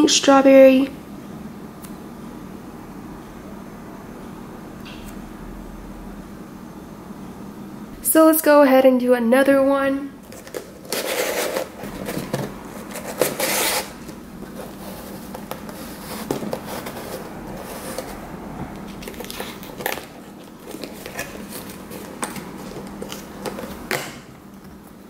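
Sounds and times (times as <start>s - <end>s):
cardboard tab scraping: 10.2s - 18.2s, 18.8s - 24.0s.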